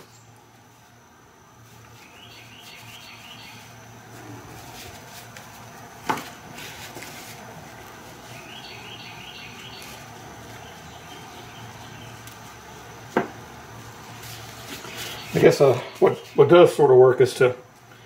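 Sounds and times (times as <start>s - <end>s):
rustling handling noises: 0.0s - 11.3s, 13.8s - 16.8s
faint high chirping trills: 2.0s - 4.0s, 8.2s - 12.3s.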